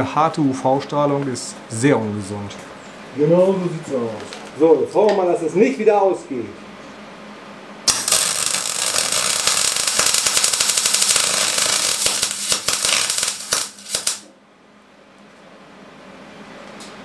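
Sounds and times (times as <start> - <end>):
low steady hum: 0.0 - 17.0
welder arc crackling: 7.9 - 14.3.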